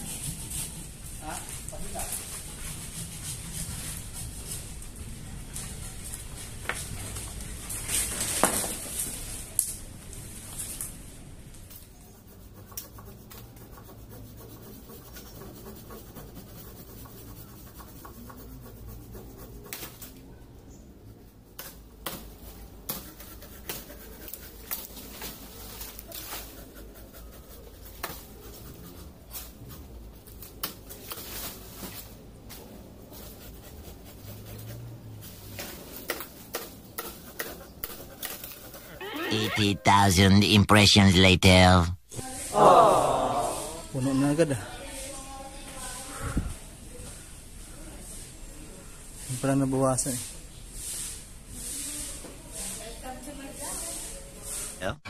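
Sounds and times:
tree leaves and branches rustling: 3.6s - 12.0s, 23.4s - 26.7s, 29.3s - 33.7s.

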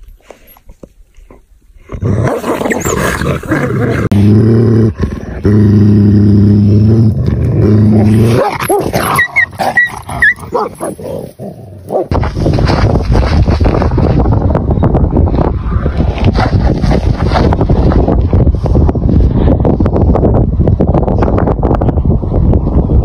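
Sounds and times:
deep animal growls: 1.9s - 9.2s
high yelps and snarls: 2.0s - 4.2s, 7.9s - 11.3s.

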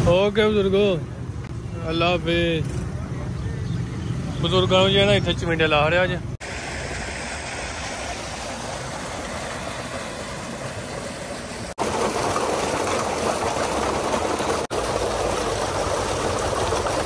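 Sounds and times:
water gushing into a tank: 6.4s - 17.0s.

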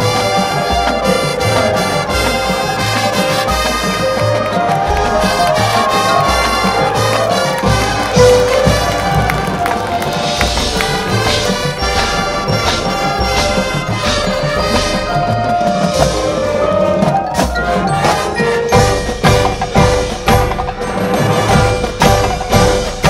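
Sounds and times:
marching band playing: 0.0s - 23.0s.

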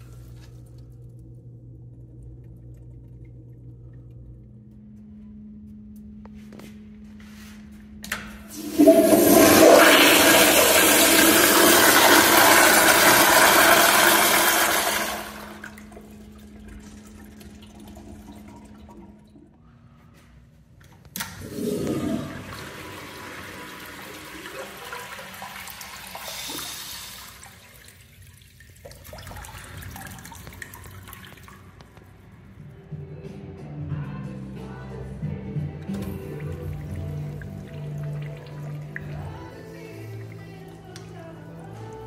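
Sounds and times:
urinal flushing: 8.0s - 20.2s, 21.1s - 32.3s, 35.8s - 42.0s
toilet flushing: 8.4s - 19.7s, 21.2s - 32.2s, 35.8s - 42.0s.

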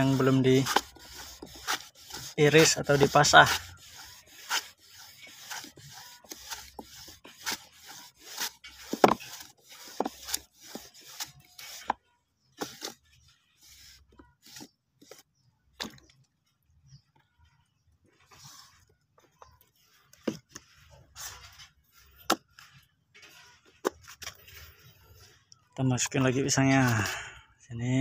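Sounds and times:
wooden slicer scraping: 0.0s - 16.0s, 19.8s - 25.3s.

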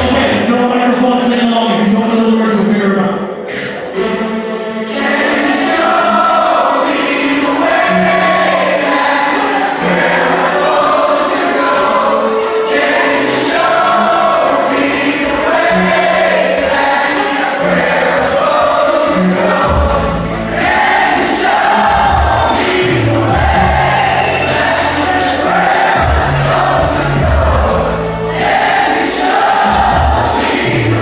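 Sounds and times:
live music over a pa: 0.0s - 31.0s
voices singing together: 3.5s - 31.0s
sustained bass notes: 19.5s - 28.8s, 29.5s - 31.0s.

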